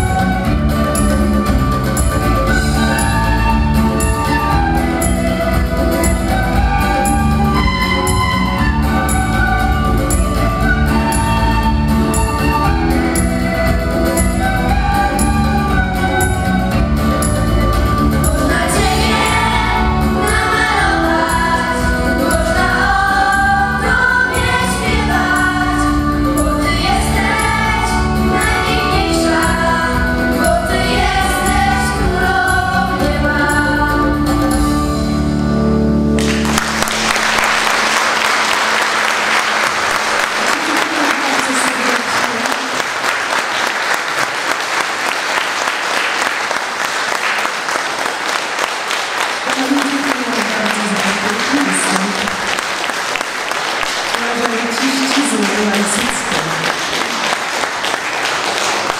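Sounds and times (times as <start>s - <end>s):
children's choir singing: 0.0s - 13.4s, 17.3s - 34.8s
instrumental accompaniment with bass: 0.0s - 38.2s
audience applause: 36.2s - 58.9s.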